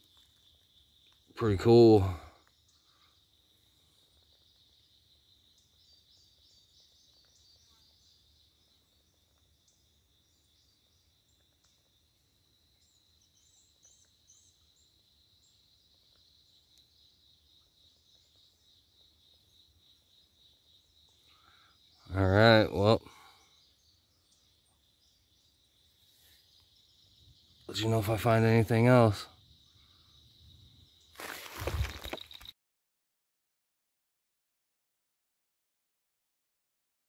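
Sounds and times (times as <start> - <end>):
faint bird chirps: 0.0 - 32.5
high-pitched insect drone: 23.9 - 32.5.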